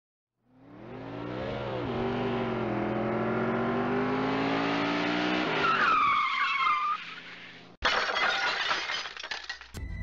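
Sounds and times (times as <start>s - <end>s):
car engine revving: 0.4s - 5.7s.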